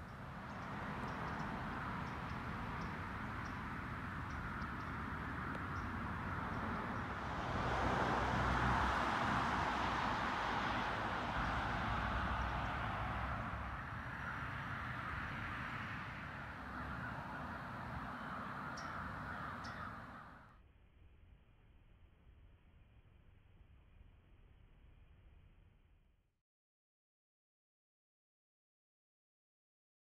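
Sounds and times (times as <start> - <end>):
flock of birds chattering: 0.0 - 7.1, 10.1 - 20.4.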